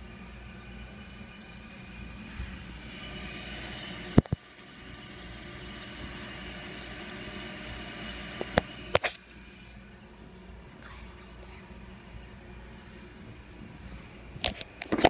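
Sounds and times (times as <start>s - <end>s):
toilet fill valve hissing: 0.0s - 10.7s.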